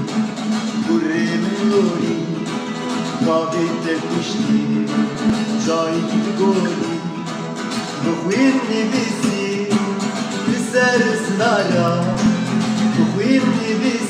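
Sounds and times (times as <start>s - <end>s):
acoustic guitar music: 0.0s - 14.0s.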